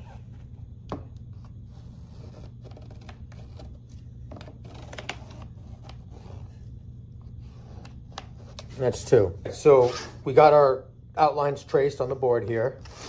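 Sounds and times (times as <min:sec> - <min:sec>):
low steady hum: 0:00.0 - 0:13.0
marker scratching on plastic: 0:01.3 - 0:09.1.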